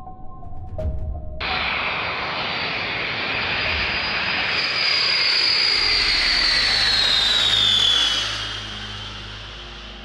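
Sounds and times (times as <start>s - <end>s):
jet engines roaring with high whine: 1.4s - 10.0s.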